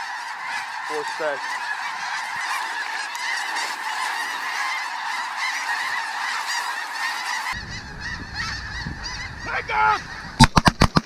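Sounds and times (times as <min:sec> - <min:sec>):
geese honking: 0:00.0 - 0:10.9
low rumble: 0:07.6 - 0:10.4.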